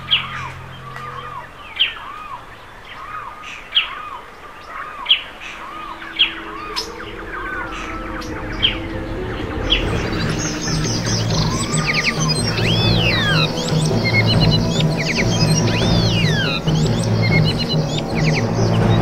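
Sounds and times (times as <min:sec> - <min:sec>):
birds chirping: 0:00.0 - 0:19.0
low sustained music: 0:00.0 - 0:19.0
bird whistling: 0:04.9 - 0:19.0.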